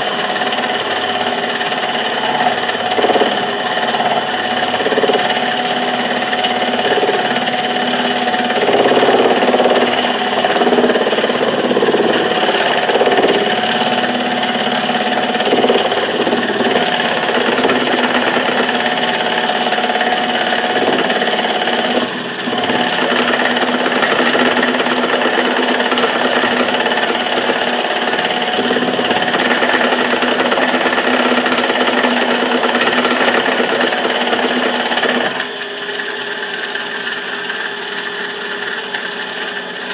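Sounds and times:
lathe motor whine: 0:00.0 - 0:39.9
tool cutting metal bar: 0:00.0 - 0:39.9.

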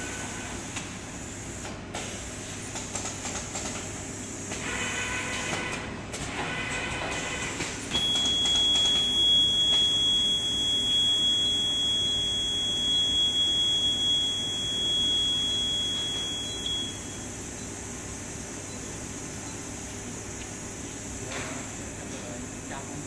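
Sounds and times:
high-pitched buzzer tone: 0:08.0 - 0:17.2.

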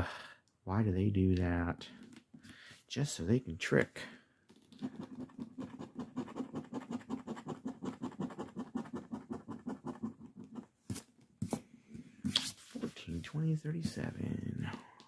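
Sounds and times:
coin scraping scratch card: 0:04.8 - 0:11.1.

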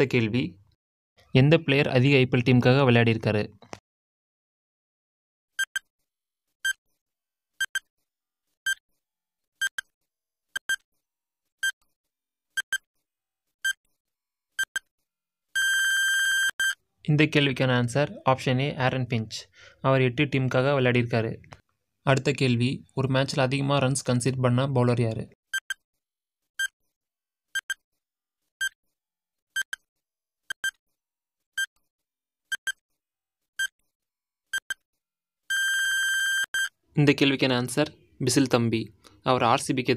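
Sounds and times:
electronic timer beeps: 0:05.6 - 0:05.9, 0:07.6 - 0:07.9, 0:12.6 - 0:12.8, 0:14.6 - 0:14.9, 0:15.6 - 0:16.8, 0:25.6 - 0:25.8, 0:27.6 - 0:27.8, 0:32.5 - 0:32.8, 0:35.5 - 0:36.7.

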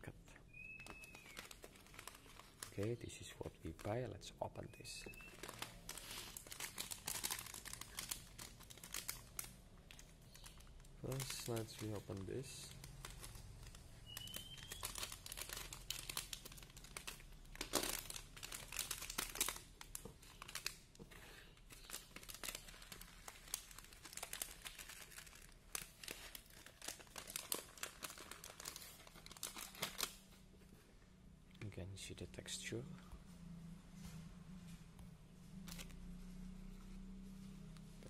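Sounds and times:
plastic bag crinkling: 0:00.5 - 0:04.0, 0:04.8 - 0:20.9, 0:21.5 - 0:30.3.

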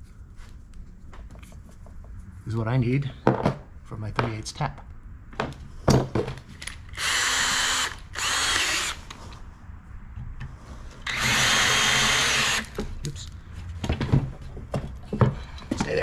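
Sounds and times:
cordless drill drilling metal: 0:07.0 - 0:09.0, 0:11.0 - 0:12.8.

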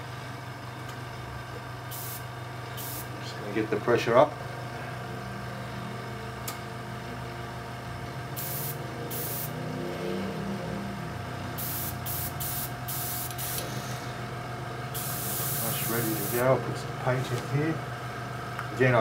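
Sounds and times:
air hissing from airbrush: 0:01.9 - 0:03.1, 0:08.4 - 0:09.6, 0:11.6 - 0:14.2, 0:14.9 - 0:16.5
airbrush compressor running: 0:01.9 - 0:03.2, 0:08.3 - 0:09.6, 0:11.6 - 0:16.6.

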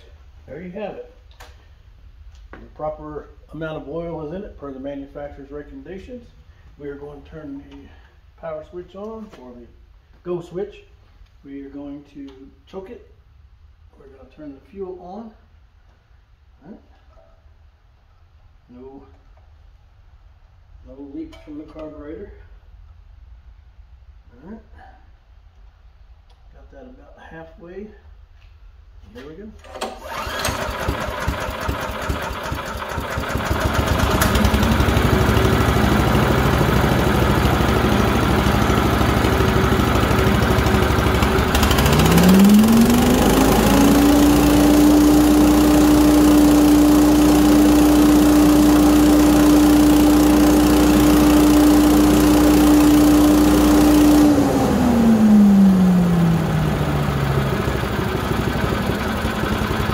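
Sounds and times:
engine pull-start: 0:29.6 - 0:59.9
small engine running and whining: 0:29.8 - 0:59.9.

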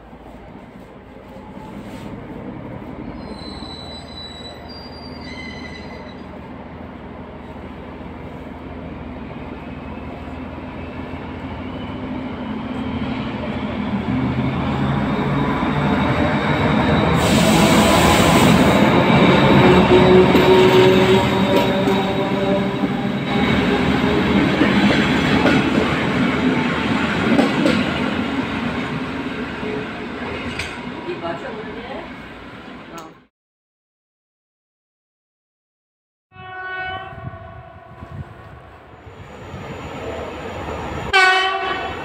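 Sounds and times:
diesel locomotive engine hum: 0:00.0 - 0:03.3, 0:04.5 - 0:33.1, 0:37.0 - 0:42.0
train rushing past: 0:00.2 - 0:33.1, 0:37.4 - 0:42.0
high-pitched squeals: 0:03.0 - 0:06.4.

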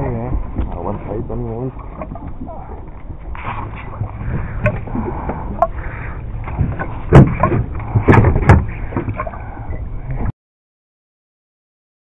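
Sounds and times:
sharp knocks and thumps: 0:06.4 - 0:09.2.

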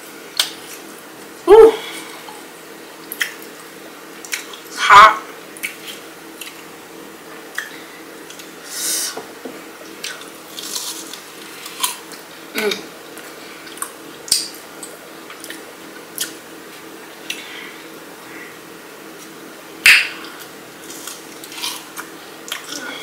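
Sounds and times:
crunchy chewing: 0:10.0 - 0:12.2, 0:20.3 - 0:22.7.

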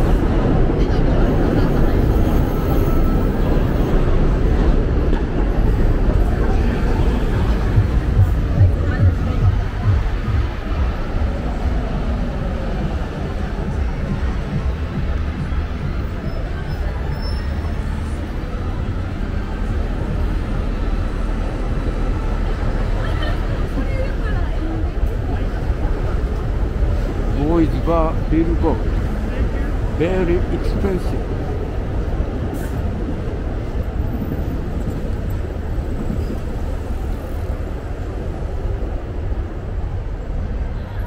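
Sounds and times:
city traffic rumble: 0:00.0 - 0:41.0.

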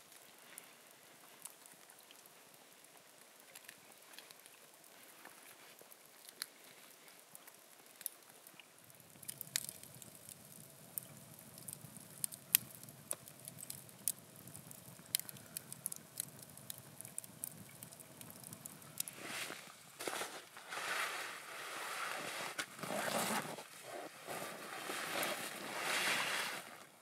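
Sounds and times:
campfire crackling and popping: 0:00.0 - 0:27.0
rush of flame: 0:13.4 - 0:26.9
rustling: 0:18.9 - 0:27.0.

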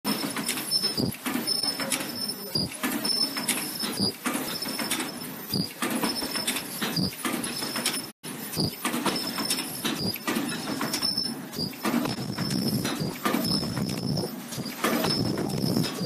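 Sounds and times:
machine mechanical clacks: 0:00.1 - 0:16.0
high steady machine whine: 0:08.6 - 0:16.0.

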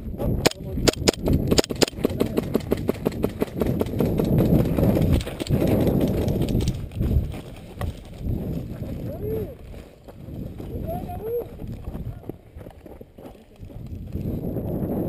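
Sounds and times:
sharp clicks: 0:00.4 - 0:06.8
footsteps on gravel: 0:04.2 - 0:14.5.

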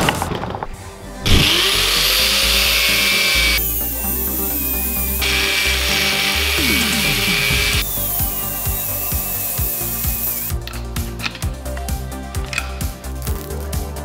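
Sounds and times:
background music with beat: 0:00.9 - 0:14.0
angle grinder grinding steel: 0:01.3 - 0:10.6.

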